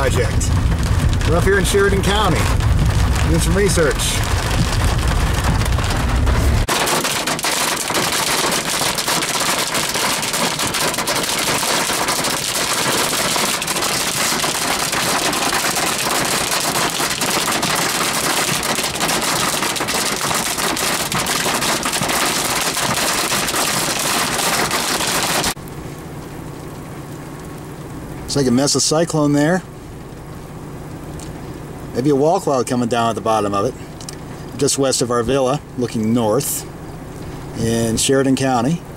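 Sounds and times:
hail rattling on vehicle roof: 0:00.0 - 0:25.6.

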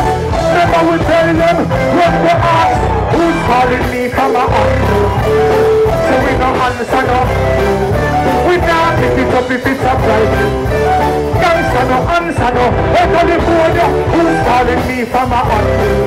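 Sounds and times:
live reggae band: 0:00.0 - 0:16.0
person singing into microphone: 0:00.0 - 0:16.0
strong bass line: 0:00.0 - 0:16.0.

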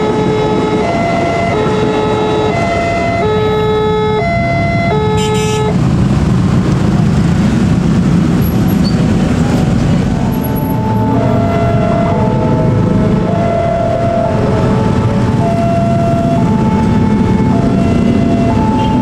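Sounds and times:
railroad crossing two-tone alarm: 0:00.0 - 0:05.8, 0:10.6 - 0:19.0
motorcycle engines revving: 0:00.0 - 0:19.0.

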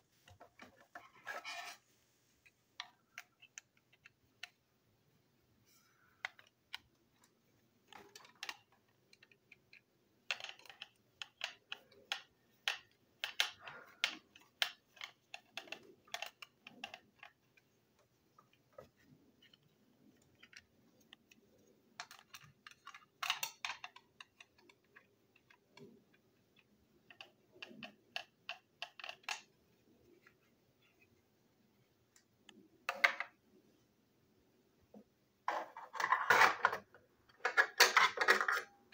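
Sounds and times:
plastic toy parts clicking and rattling: 0:02.4 - 0:04.6, 0:06.0 - 0:29.6, 0:35.5 - 0:38.9.

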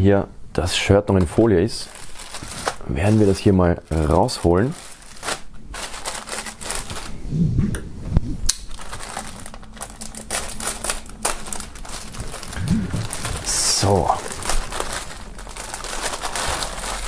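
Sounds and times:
plastic bag crinkling: 0:01.7 - 0:07.2, 0:08.6 - 0:17.0.

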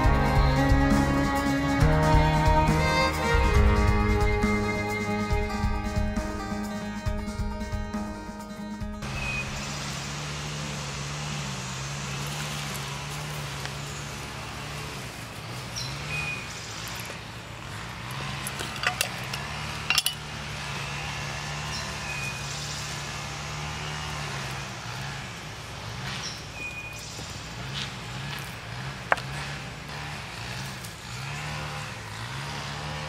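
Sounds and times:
cooking gear clinking: 0:18.4 - 0:20.3.

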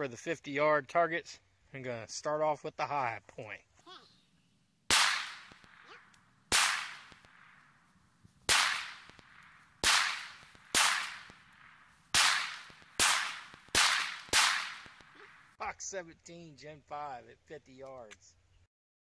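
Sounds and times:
pistol shots with echo: 0:04.9 - 0:07.8, 0:08.5 - 0:15.5.

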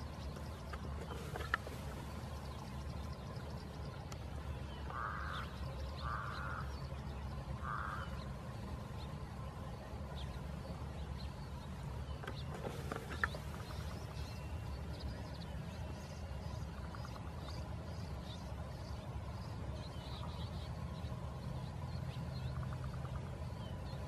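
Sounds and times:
harsh bird-like animal calls: 0:04.9 - 0:06.8, 0:07.6 - 0:08.2.

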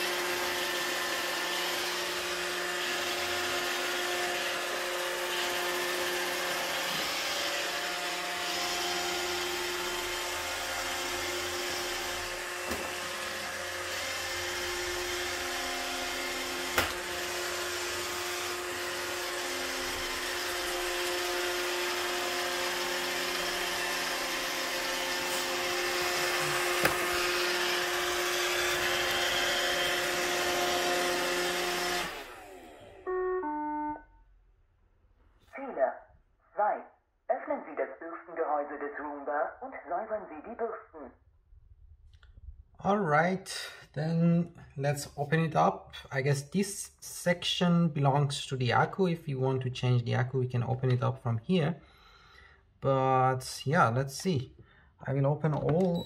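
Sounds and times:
robotic vacuum whirring: 0:00.0 - 0:33.4.

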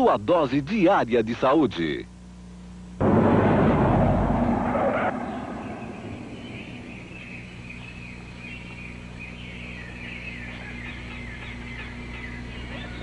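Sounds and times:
low hum: 0:02.8 - 0:11.3
birds chirping: 0:04.3 - 0:13.0.

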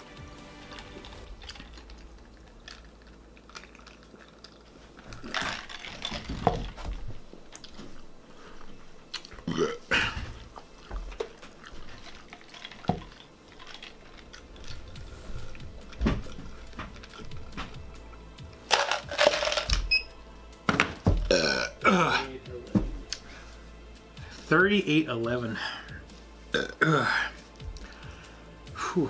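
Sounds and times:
man chewing: 0:00.0 - 0:18.6, 0:27.3 - 0:28.2
items knocking on a table: 0:20.7 - 0:21.3, 0:22.7 - 0:23.0.

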